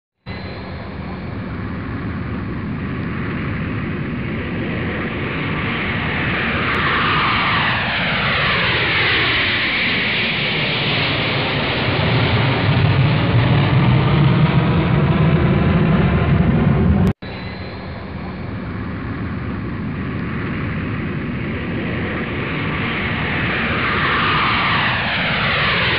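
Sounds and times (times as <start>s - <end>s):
jet airliner flying past: 0.3s - 25.9s
deep low rumble: 11.3s - 23.8s.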